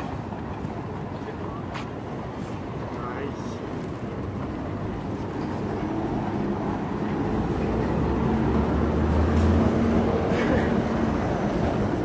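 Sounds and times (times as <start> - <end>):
vehicle engine hum approaching: 3.4 - 12.0.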